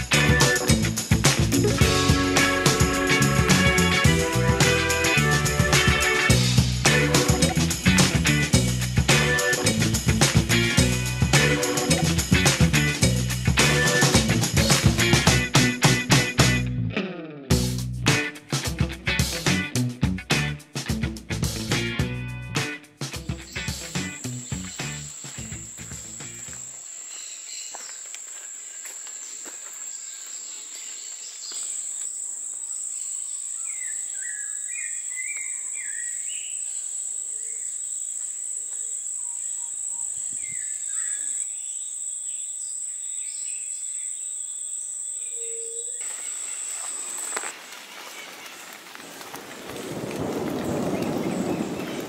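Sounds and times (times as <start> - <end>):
insects droning: 23.2 - 52.0.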